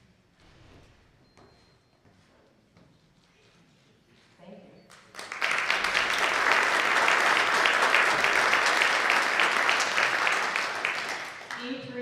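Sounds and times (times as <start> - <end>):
audience applauding: 4.9 - 11.8.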